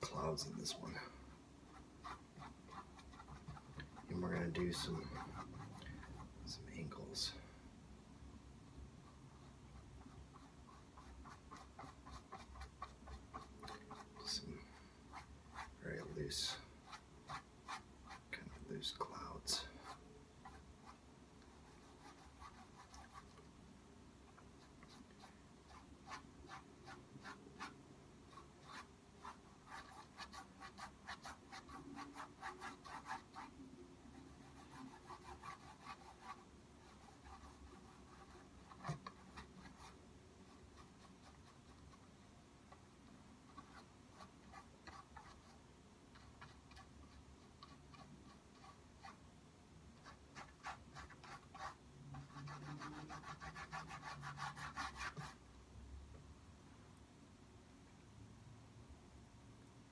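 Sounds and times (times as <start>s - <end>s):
paintbrush strokes on canvas: 0.0s - 7.4s, 9.0s - 23.4s, 24.3s - 42.1s, 50.0s - 55.4s.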